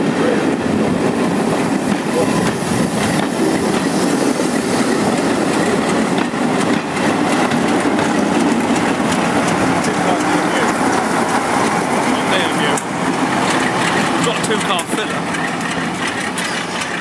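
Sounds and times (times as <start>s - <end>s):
diesel locomotive engine passing: 0.0s - 17.0s.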